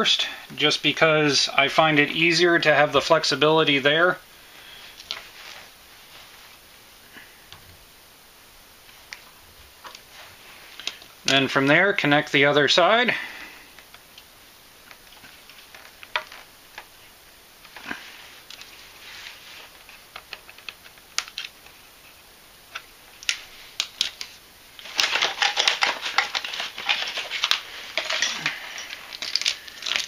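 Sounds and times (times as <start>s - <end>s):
dense clicks and rattles: 13.8s - 17.0s, 22.7s - 30.0s.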